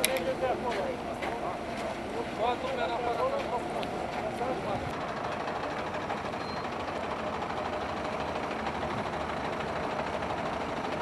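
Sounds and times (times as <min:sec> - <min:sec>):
idling vehicles rumble: 0:00.0 - 0:11.0.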